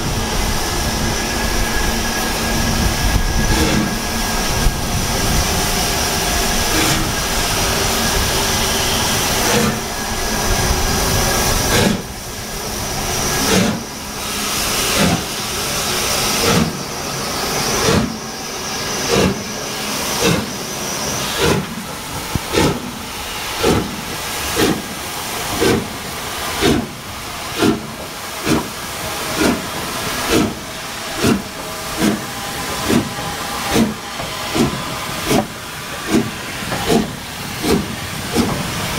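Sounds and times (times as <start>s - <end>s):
steam hissing: 0.0s - 38.9s
steam locomotive exhaust chuffs: 0.0s - 38.9s.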